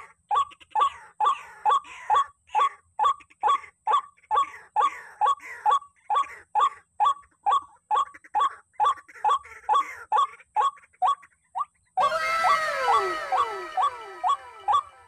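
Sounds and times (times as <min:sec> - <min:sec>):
waterhen calling: 0:12.0 - 0:15.0.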